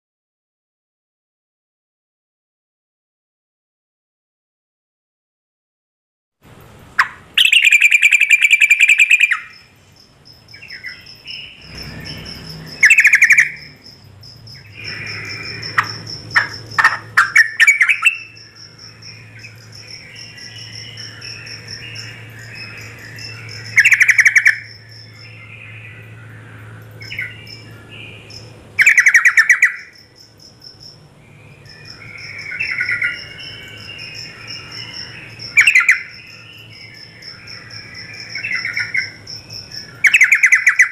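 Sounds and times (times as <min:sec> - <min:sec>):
bird chattering calls: 0:07.0 - 0:09.7, 0:10.6 - 0:25.8, 0:27.0 - 0:30.0, 0:31.7 - 0:40.9.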